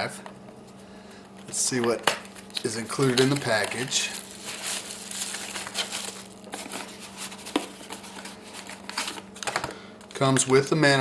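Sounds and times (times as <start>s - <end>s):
plastic and bubble wrap crinkling: 2.4s - 9.2s.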